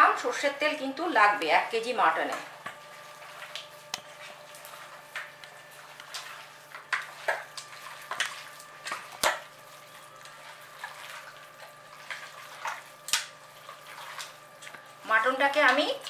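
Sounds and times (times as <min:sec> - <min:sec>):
wet squelches and slaps of meat: 0:02.6 - 0:15.0.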